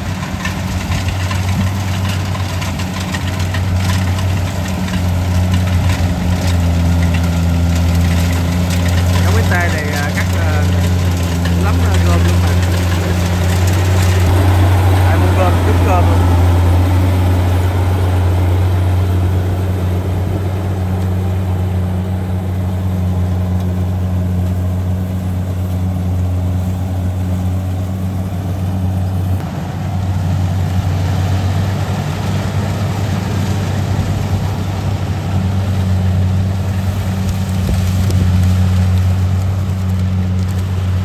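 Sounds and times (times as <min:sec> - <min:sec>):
combine harvester running: 0:00.0 - 0:41.0.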